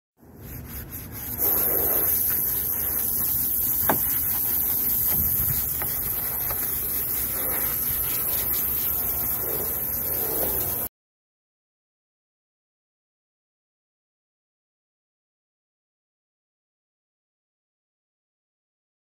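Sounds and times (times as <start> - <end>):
bristle brush scrubbing: 0.2 - 10.9
water spraying on hull: 0.6 - 10.9.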